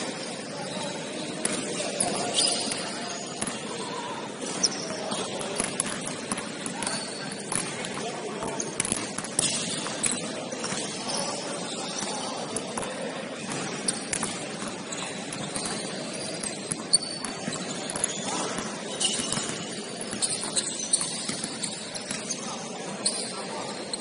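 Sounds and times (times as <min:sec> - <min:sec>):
gym background noise: 0:00.0 - 0:24.0
sneakers squeaking: 0:00.0 - 0:24.0
basketball bouncing: 0:04.5 - 0:11.0, 0:12.8 - 0:22.2.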